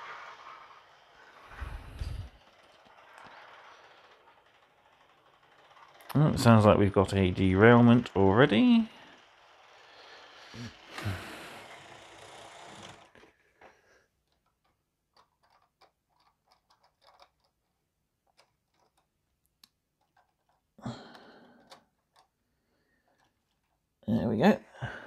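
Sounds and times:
model train coach rattling on track: 0.0s - 13.4s.

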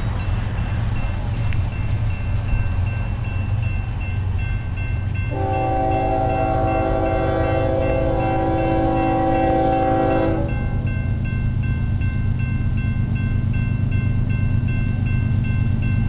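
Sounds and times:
railroad crossing bell dinging: 0.0s - 16.0s
locomotive air horn blast: 5.3s - 10.6s.

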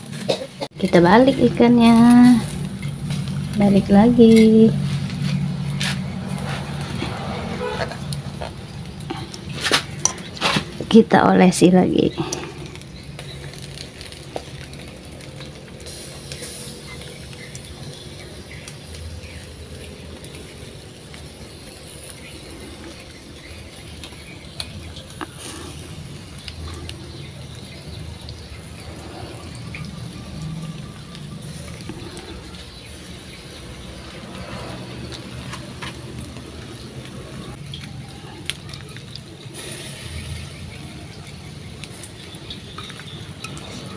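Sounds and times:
fish sizzling over charcoal: 0.0s - 43.9s
small crackles and pops: 12.2s - 34.1s, 35.0s - 43.9s.

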